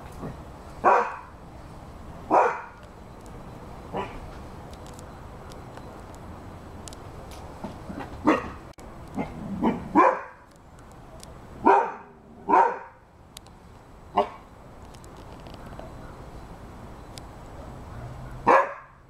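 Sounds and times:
dog barking: 0.8 - 1.3, 2.3 - 2.8, 3.9 - 4.2, 8.2 - 8.6, 9.2 - 10.4, 11.6 - 13.0, 14.2 - 14.4, 17.9 - 19.0.

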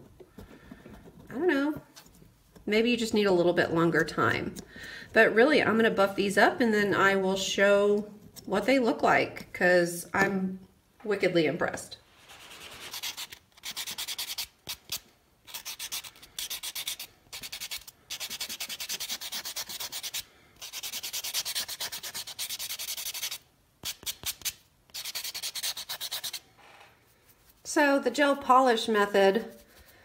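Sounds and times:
nail buffer scratching nails: 12.4 - 26.4.

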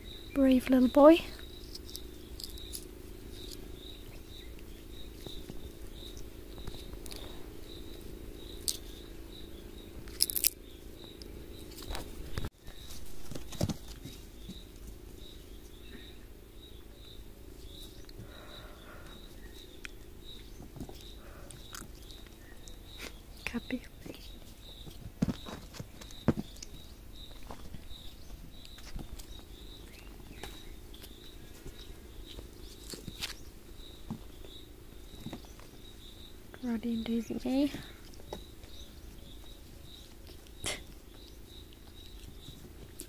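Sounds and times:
insect chirping: 0.0 - 43.0
monkeys rustling and tapping camera: 11.1 - 15.8, 19.1 - 36.1.

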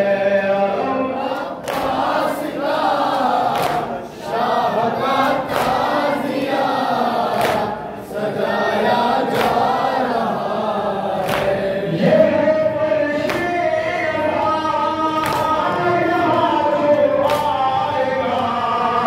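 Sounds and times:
lead reciter singing lament: 0.0 - 19.0
men chanting in unison: 0.0 - 19.0
chest-beating slaps: 3.5 - 3.9.

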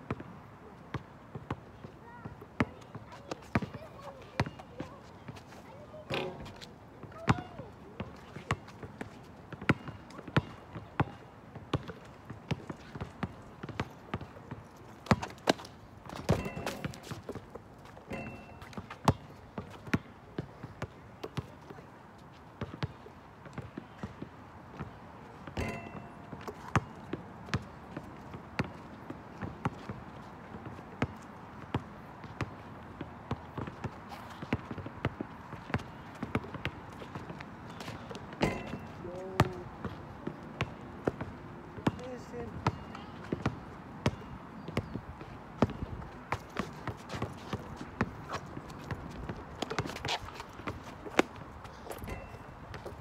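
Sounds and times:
basketball bouncing on asphalt: 0.9 - 21.7, 22.6 - 53.0
shoe squeal: 49.6 - 52.8.

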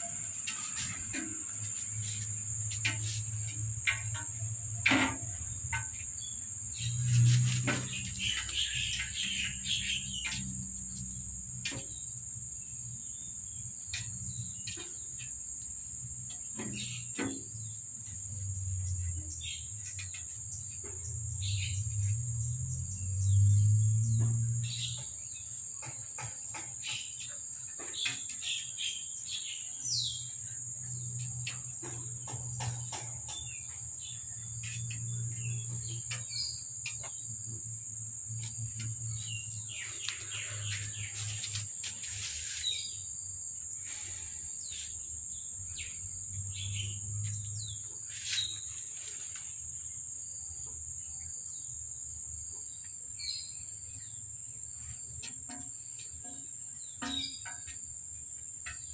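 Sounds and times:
bird chirps: 0.0 - 11.1
high insect drone: 0.0 - 58.9.

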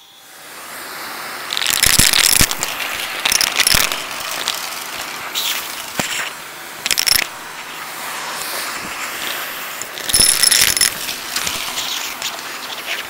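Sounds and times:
vacuum cleaner running: 0.0 - 1.5
coins clattering in hose: 1.5 - 7.4, 9.8 - 13.0.

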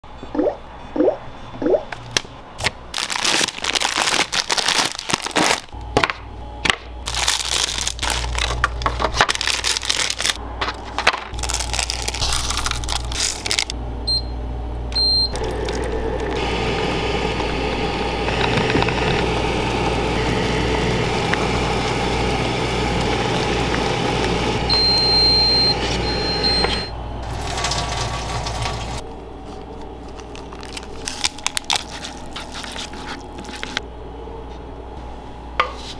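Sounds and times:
machine beeps: 14.0 - 15.5, 24.7 - 27.0
hot water pouring into bowl: 15.3 - 25.1, 27.2 - 29.0.

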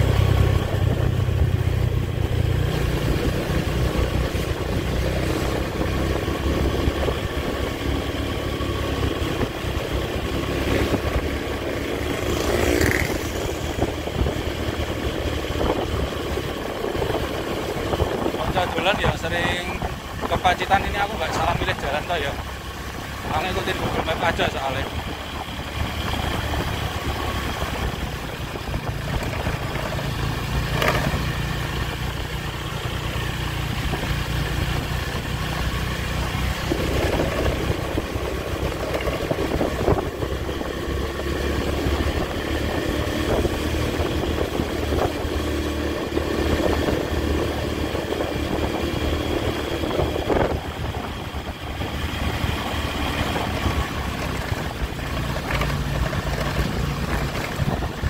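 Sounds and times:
motorcycle engine running: 0.0 - 58.0.

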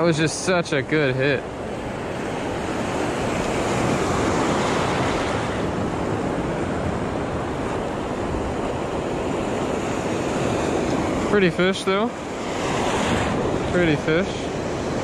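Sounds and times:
ocean surf breaking: 0.0 - 15.0
wind on microphone: 1.4 - 15.0.

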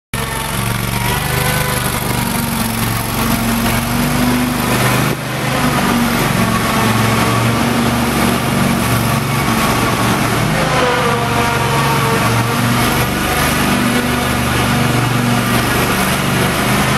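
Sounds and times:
mower engine running: 0.2 - 16.9.

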